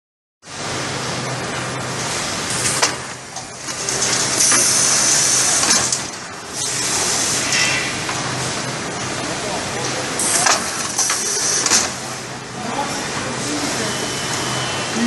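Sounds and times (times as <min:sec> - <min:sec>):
packaging machine humming: 0:01.6 - 0:15.0.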